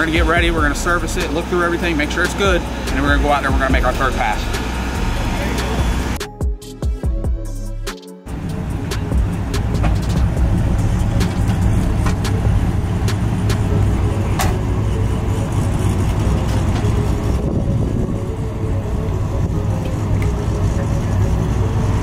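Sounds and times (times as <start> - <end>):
race car engine idling: 0.0 - 6.2.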